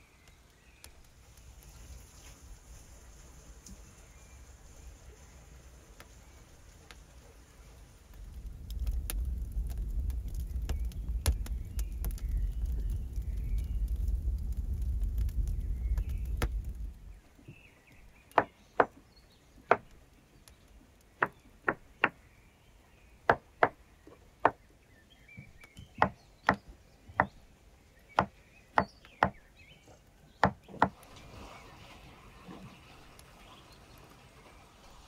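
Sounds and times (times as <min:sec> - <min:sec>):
wood fire rumbling in oven: 0:00.5 - 0:17.7.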